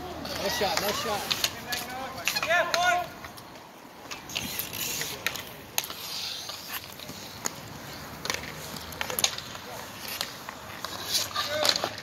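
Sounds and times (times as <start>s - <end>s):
hockey sticks and puck clacking: 0.0s - 12.0s
inline skate wheels rolling: 0.0s - 12.0s.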